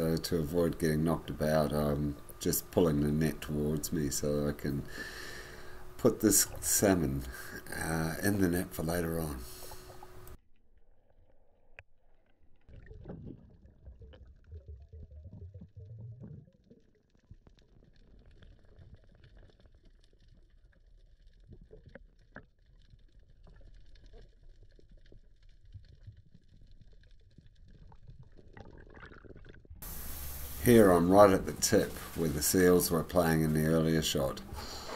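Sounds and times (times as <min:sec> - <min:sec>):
muffled underwater clicks and crackles: 0:08.7 - 0:29.8
water sloshing and gurgling: 0:09.4 - 0:10.4, 0:12.0 - 0:30.6
low rumble: 0:12.8 - 0:16.6.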